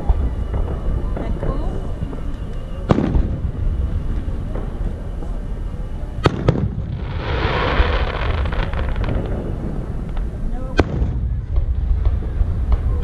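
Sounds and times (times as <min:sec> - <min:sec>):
firework bangs: 0:00.0 - 0:13.0
steady low rumble: 0:00.0 - 0:13.0
firework hiss: 0:02.9 - 0:13.0.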